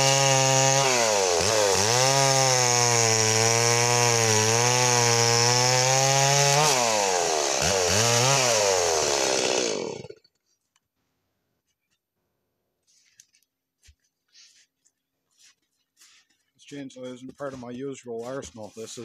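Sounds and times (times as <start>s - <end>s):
chainsaw cutting through log: 0.0s - 10.4s.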